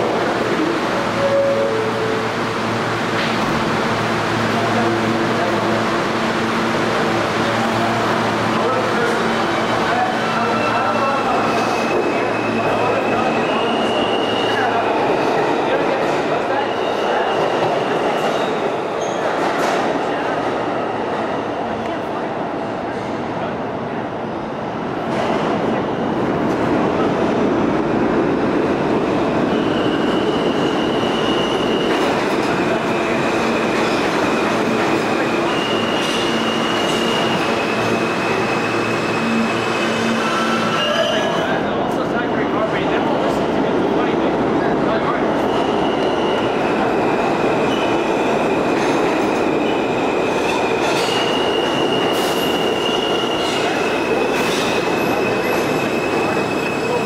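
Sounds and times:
train wheels rumbling on rail: 0.0s - 24.1s, 24.7s - 57.0s
high wheel squeal: 35.4s - 41.6s, 50.8s - 57.0s.

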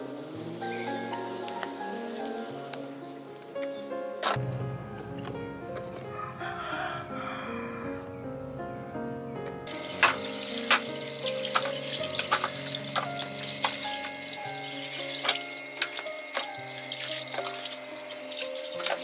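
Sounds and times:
background music: 0.0s - 19.0s
water running and splashing: 9.7s - 19.0s.

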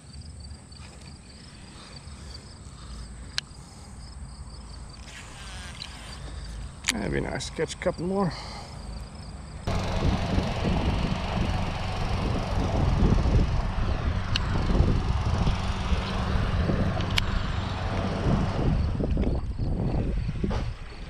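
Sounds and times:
lawn mower engine running: 9.6s - 19.1s.

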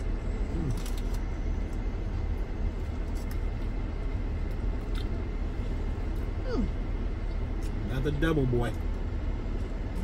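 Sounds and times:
low rumble inside vehicle: 0.0s - 10.0s.

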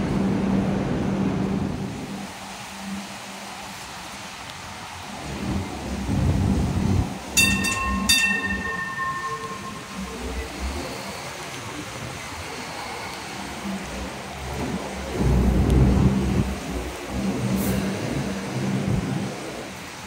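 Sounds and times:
light rail vehicle rumbling past: 0.0s - 20.0s
ringing warning signal: 7.4s - 11.0s.

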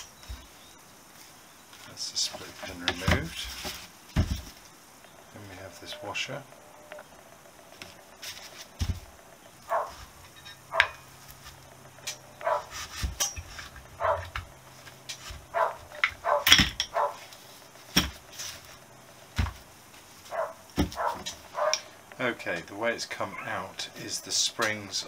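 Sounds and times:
metal parts clinking and tapping: 13.1s - 15.3s, 15.9s - 17.0s.

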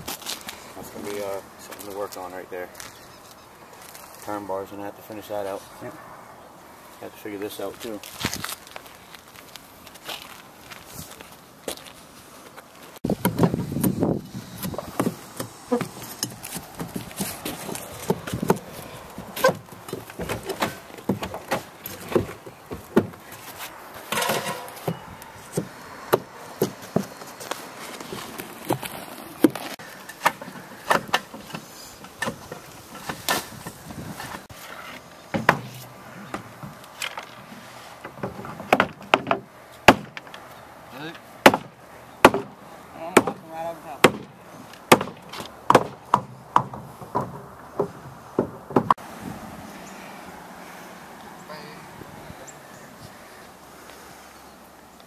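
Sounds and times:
footsteps on wooden boards: 8.0s - 40.4s, 44.0s - 49.0s
hammer knocks on wood: 44.9s - 49.0s.

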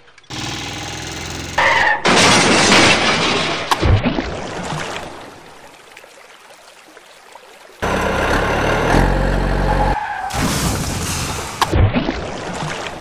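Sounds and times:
truck engine: 0.0s - 2.0s, 7.8s - 11.6s.

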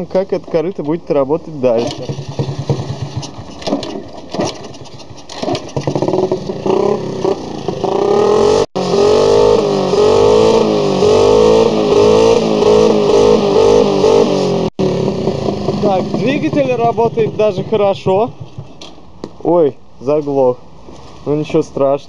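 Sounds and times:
moped engine revving: 1.6s - 19.2s
moped kick-start clattering: 1.7s - 8.0s, 15.0s - 19.1s.

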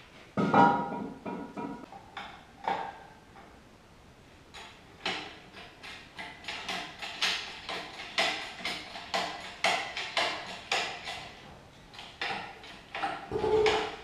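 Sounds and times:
hydraulic jack pumping clacks: 4.5s - 14.0s.

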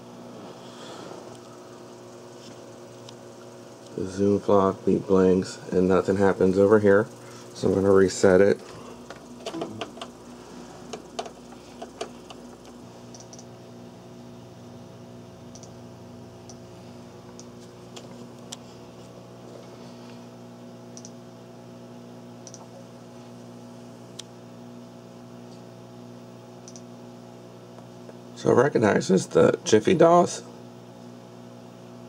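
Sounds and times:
low electrical hum: 0.0s - 32.0s
clicks from cables and mouse: 10.9s - 13.5s, 15.5s - 15.8s, 22.4s - 22.7s, 26.6s - 26.9s.

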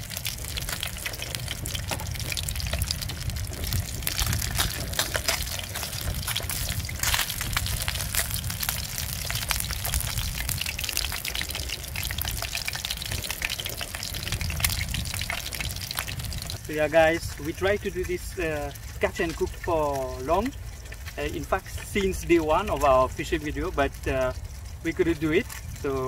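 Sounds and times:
low rumble: 0.0s - 19.7s
fish sizzling in hot oil: 0.0s - 26.0s.

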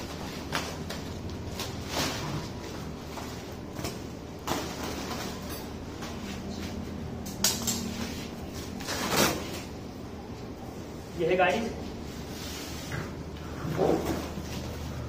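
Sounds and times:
plastic wrapping rustling: 0.0s - 6.8s.

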